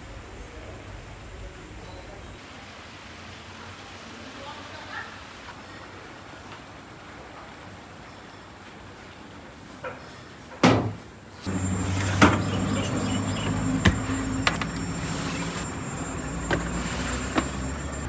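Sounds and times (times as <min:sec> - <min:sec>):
low machine hum: 0:11.5 - 0:18.0.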